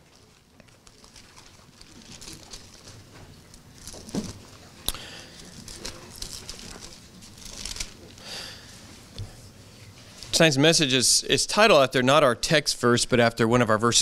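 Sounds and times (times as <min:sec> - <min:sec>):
book pages turning and rustling: 0:00.0 - 0:04.6, 0:05.4 - 0:08.2.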